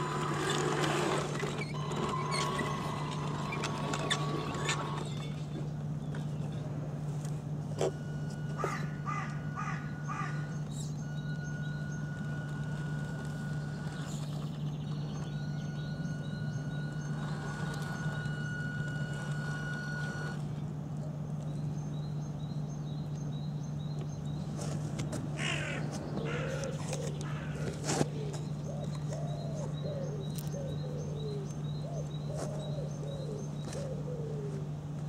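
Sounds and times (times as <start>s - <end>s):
bird calling: 7.8s - 20.4s, 23.5s - 35.0s.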